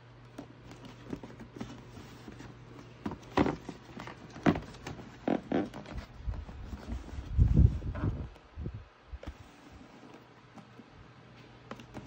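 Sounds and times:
rustling: 0:00.4 - 0:08.4.

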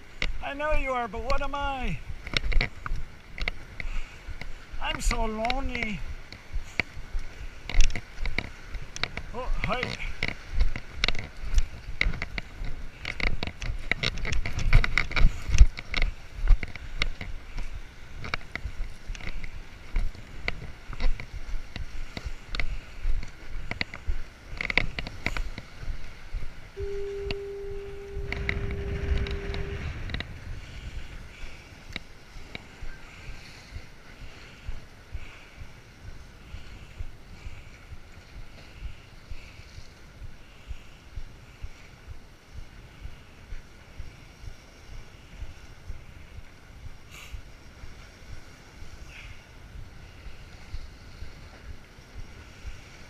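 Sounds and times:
wind buffeting microphone: 0:00.0 - 0:53.0
steady tone: 0:26.8 - 0:30.6.

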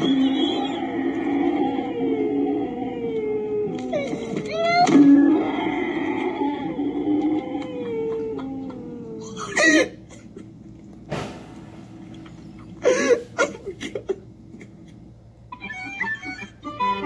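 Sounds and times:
man laughing: 0:07.6 - 0:10.5.

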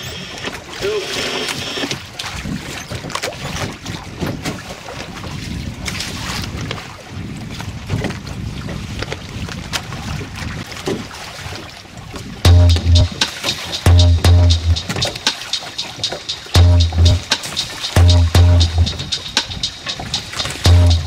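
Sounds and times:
water rushing along hull: 0:00.0 - 0:21.0
wind buffeting microphone: 0:02.0 - 0:12.5
small splashes and knocks: 0:02.2 - 0:12.4.

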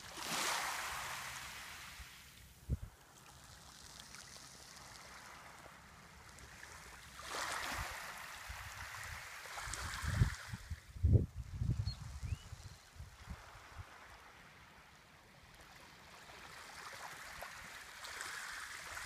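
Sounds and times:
waves lapping on pebble shore: 0:00.0 - 0:10.6, 0:15.6 - 0:19.0.

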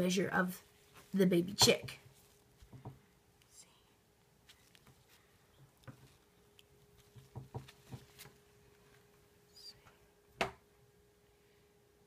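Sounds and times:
faint steady hum: 0:00.0 - 0:12.0
soft knocks and taps: 0:01.6 - 0:03.1, 0:05.6 - 0:06.2, 0:07.0 - 0:08.4.

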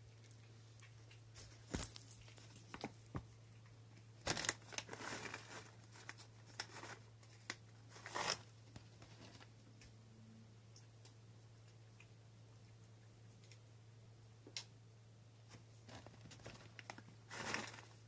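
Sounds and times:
low steady hum: 0:00.0 - 0:18.0
plastic bag crinkling: 0:04.2 - 0:08.5, 0:15.9 - 0:18.0.

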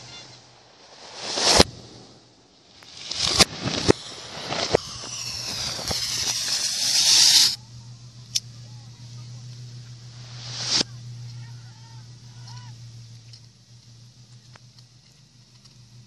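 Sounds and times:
reversed firework bangs: 0:00.0 - 0:07.6, 0:09.4 - 0:10.9
falling whistling tones: 0:00.0 - 0:07.8, 0:10.1 - 0:11.0
firework fountain hissing crackle: 0:00.0 - 0:16.0.

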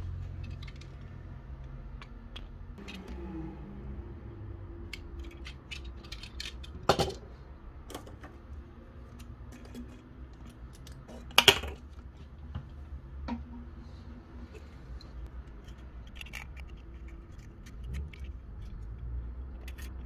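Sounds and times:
plastic objects clicking: 0:00.3 - 0:03.0, 0:04.8 - 0:07.2, 0:15.4 - 0:20.0.

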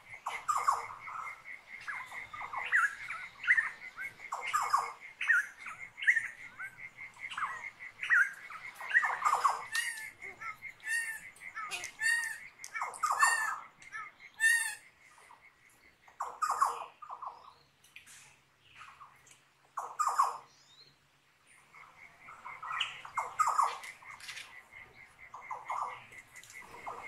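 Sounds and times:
cricket pulsing chirp: 0:00.0 - 0:16.7, 0:21.6 - 0:27.0
birds squawking and chirping: 0:00.0 - 0:27.0.

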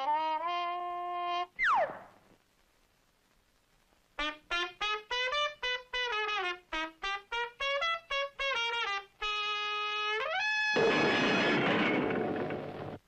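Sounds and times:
trumpet playing jazzy notes: 0:00.0 - 0:01.6, 0:04.2 - 0:11.6.

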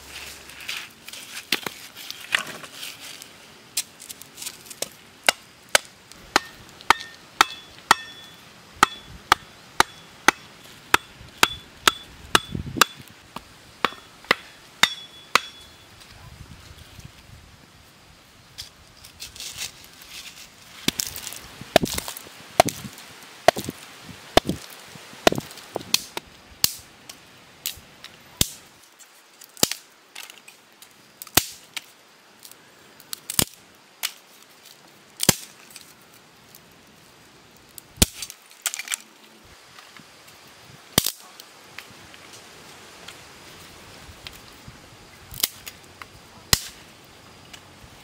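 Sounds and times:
machete chopping dry sticks: 0:03.8 - 0:15.7, 0:20.8 - 0:22.9, 0:23.5 - 0:23.8, 0:24.4 - 0:26.8, 0:29.6 - 0:30.4, 0:31.2 - 0:31.9, 0:38.0 - 0:39.0, 0:45.3 - 0:45.8, 0:46.5 - 0:46.8.

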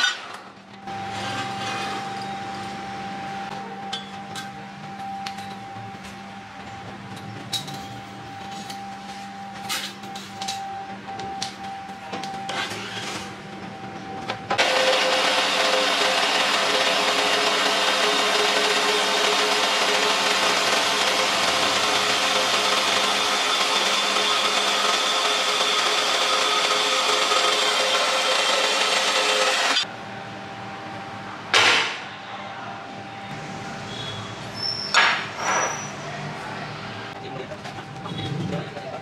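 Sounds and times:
band saw cutting steel: 0:14.6 - 0:29.9.

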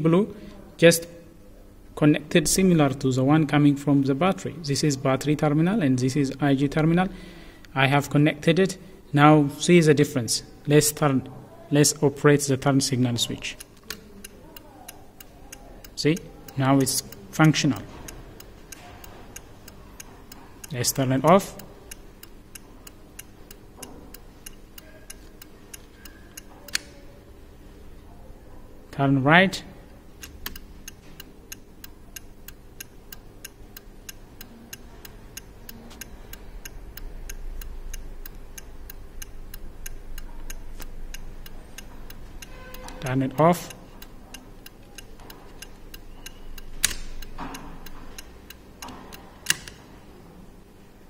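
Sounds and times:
turn signal relay ticking: 0:13.4 - 0:27.2, 0:30.0 - 0:49.8
turn signal stalk clicks: 0:30.2 - 0:49.8.

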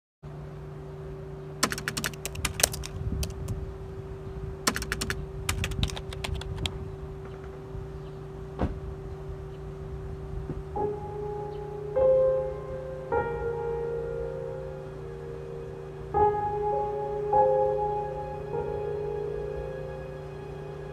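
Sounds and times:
steady low hum: 0:00.2 - 0:20.9
keyboard typing clicks: 0:01.6 - 0:03.5, 0:04.7 - 0:06.8.

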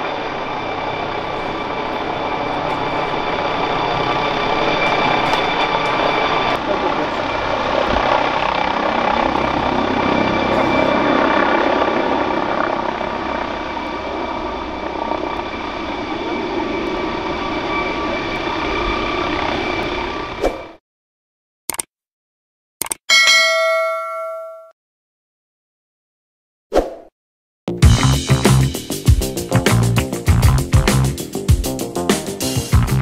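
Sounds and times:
helicopter rotor noise: 0:00.0 - 0:20.8, 0:27.8 - 0:33.0
high turbine whine: 0:00.0 - 0:20.8.

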